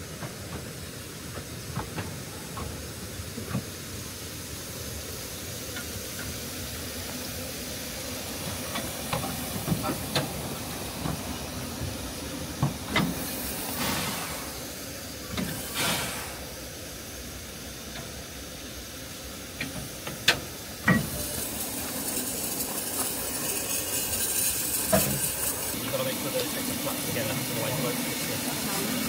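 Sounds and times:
steam hissing from locomotive: 0:00.0 - 0:29.0.

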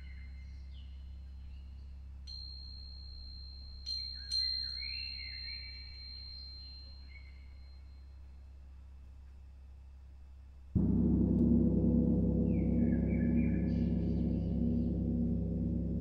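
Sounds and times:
steady low hum: 0:10.8 - 0:16.0.

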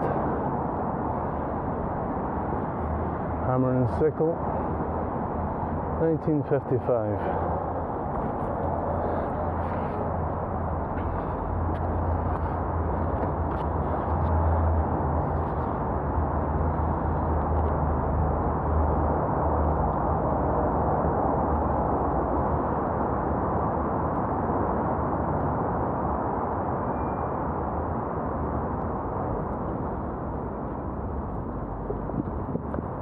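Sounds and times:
bicycle tyres rolling on path: 0:08.1 - 0:19.2
wind over microphone: 0:28.8 - 0:33.0.

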